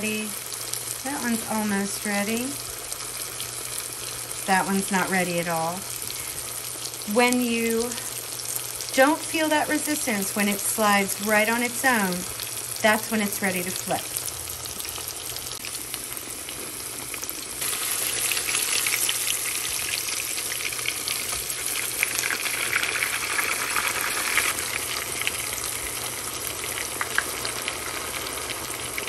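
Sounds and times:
zucchini sizzling in hot oil: 0:00.0 - 0:29.0
oil crackling and popping: 0:14.2 - 0:29.0.

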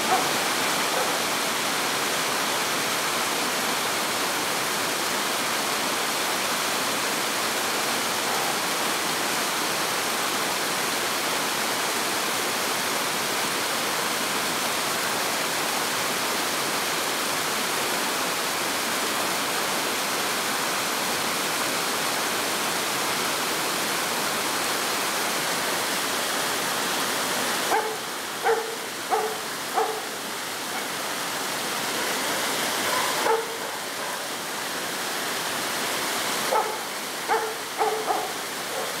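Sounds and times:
dog barking: 0:00.0 - 0:01.2, 0:08.3 - 0:08.6, 0:27.7 - 0:30.1, 0:32.8 - 0:34.3, 0:36.5 - 0:39.0
water rushing over rocks: 0:00.0 - 0:39.0.

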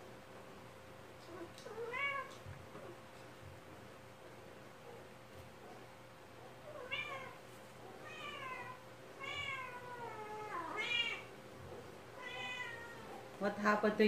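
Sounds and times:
cat meowing: 0:01.4 - 0:02.4, 0:06.7 - 0:07.4, 0:08.0 - 0:11.3, 0:12.2 - 0:13.2.

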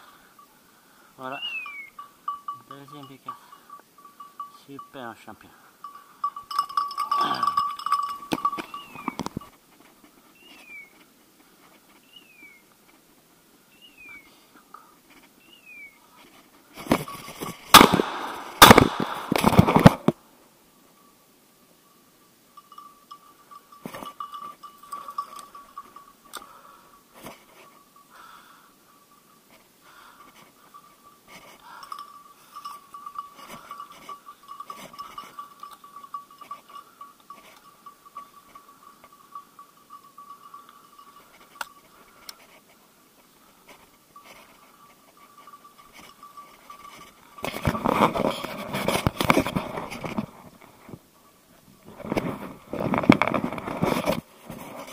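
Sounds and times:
faint steady high tone: 0:00.0 - 0:09.6, 0:20.2 - 0:47.8
brush scraping microphone: 0:43.6 - 0:50.9, 0:51.8 - 0:54.9.

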